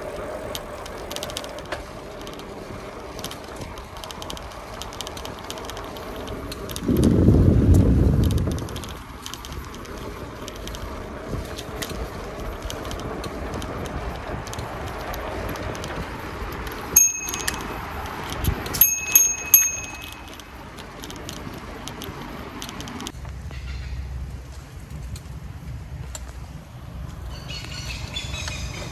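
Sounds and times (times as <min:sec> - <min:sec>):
bicycle riding noise on road: 0:00.0 - 0:28.9
bicycle bell ringing: 0:16.8 - 0:20.8.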